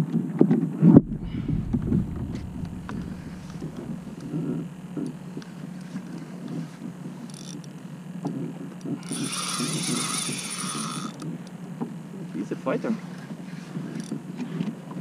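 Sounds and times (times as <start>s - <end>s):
wind and water noise: 0.0s - 15.0s
fishing reel buzzing: 7.2s - 7.7s, 9.0s - 11.3s, 13.8s - 14.2s.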